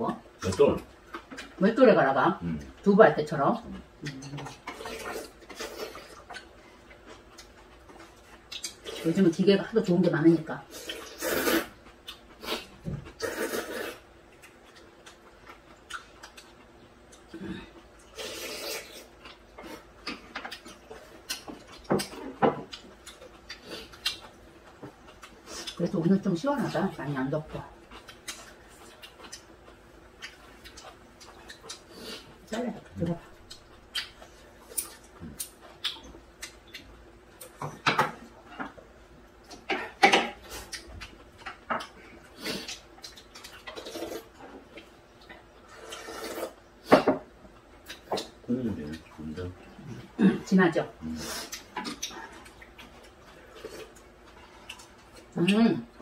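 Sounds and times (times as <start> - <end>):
slurping noodles: 10.8 - 11.7, 45.7 - 46.6
chewing mouth clicks and smacks: 33.5 - 36.9.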